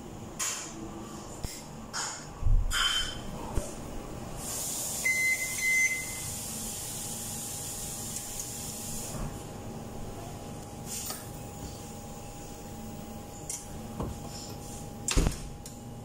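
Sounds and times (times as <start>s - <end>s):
oven fan hissing: 0.0s - 16.0s
short beeps: 5.0s - 6.3s.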